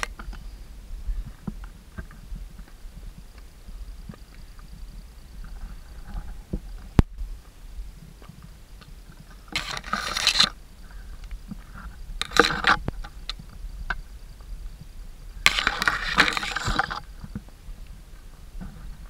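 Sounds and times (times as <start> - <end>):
stones clicking: 15.5 - 17.4.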